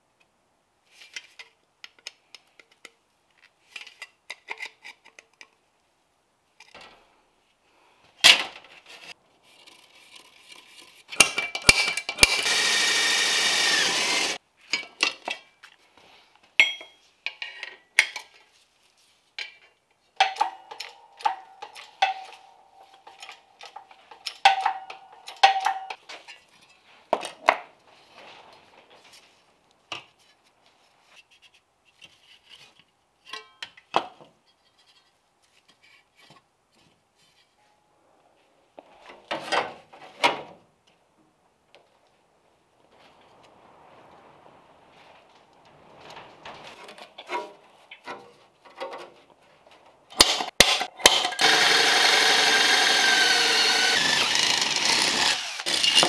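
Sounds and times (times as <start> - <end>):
electric drill whining: 12.2 - 14.4, 51.3 - 56.0
steel tools clinking: 16.6 - 18.3, 20.2 - 26.7.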